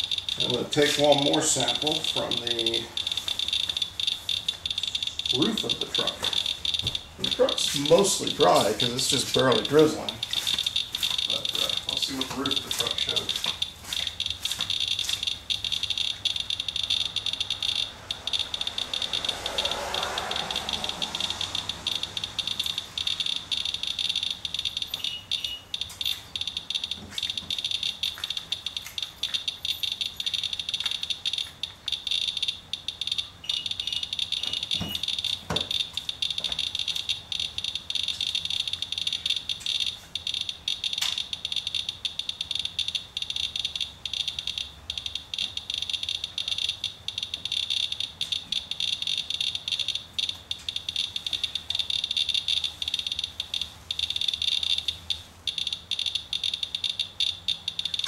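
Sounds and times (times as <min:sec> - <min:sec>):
geiger counter clicking rapidly: 0:00.0 - 0:58.0.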